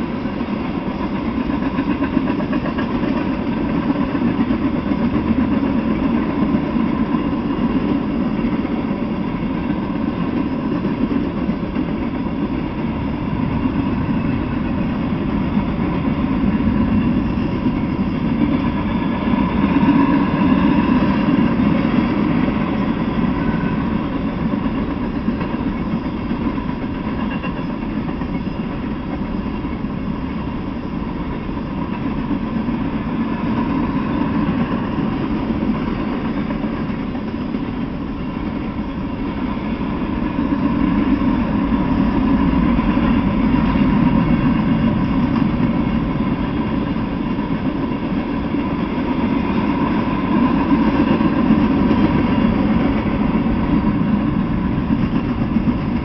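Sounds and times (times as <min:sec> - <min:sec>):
train wheels rumbling on track: 0:00.0 - 0:56.0.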